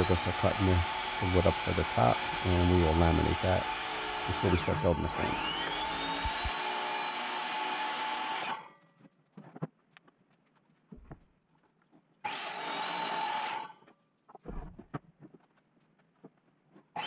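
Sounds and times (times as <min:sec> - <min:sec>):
miter saw cutting wood: 0:00.0 - 0:08.7, 0:12.3 - 0:13.8.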